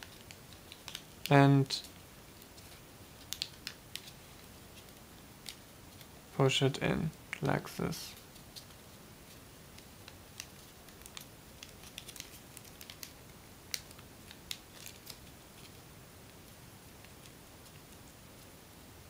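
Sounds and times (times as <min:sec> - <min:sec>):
paper crinkling: 0:00.0 - 0:01.3, 0:08.2 - 0:15.8
faint steady hiss: 0:00.0 - 0:19.0.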